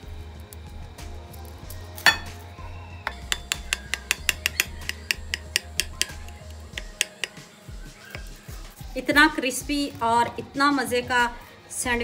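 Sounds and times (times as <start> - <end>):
sharp knock on plate: 2.1 - 2.4, 3.1 - 7.4.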